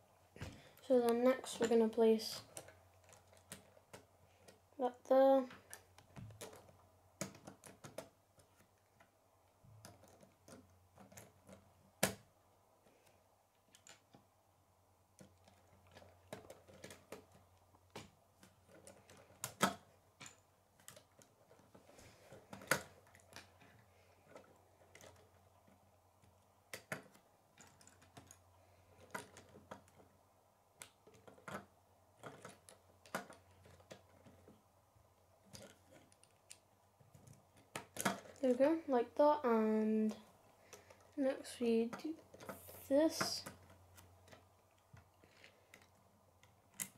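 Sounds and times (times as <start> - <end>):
plastic pieces clicking and snapping: 0.4 - 4.6, 5.4 - 9.1, 9.7 - 14.3, 15.2 - 30.2, 30.8 - 34.6, 35.4 - 38.8, 41.9 - 46.9.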